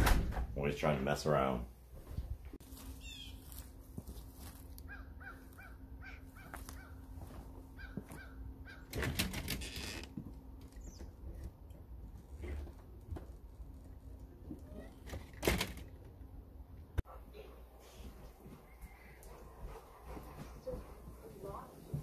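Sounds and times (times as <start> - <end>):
crow cawing: 4.9 - 7.0, 7.8 - 8.9.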